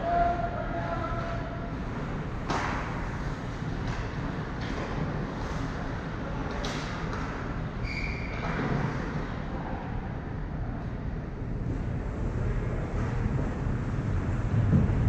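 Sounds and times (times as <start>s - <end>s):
distant hockey play: 0.0s - 9.9s
low rumble of arena hall: 0.0s - 15.0s.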